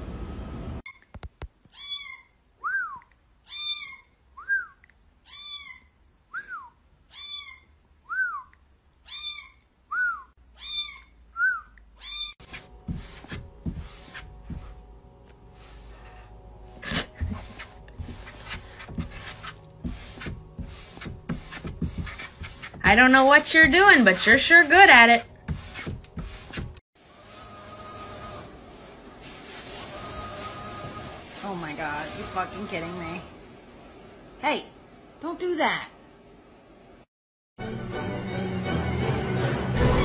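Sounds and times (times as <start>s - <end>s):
cat scratching cardboard box: 12.4s - 14.8s, 16.8s - 26.8s.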